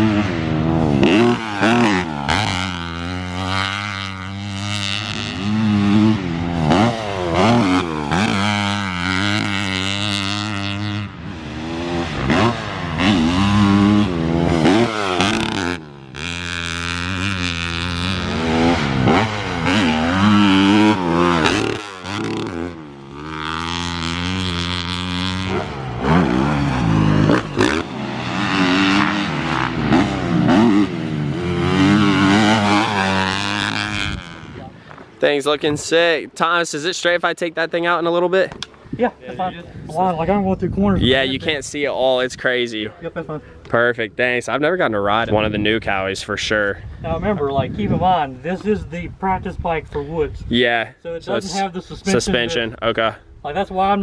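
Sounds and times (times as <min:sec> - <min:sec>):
dirt bike engine revving: 0:00.0 - 0:38.3.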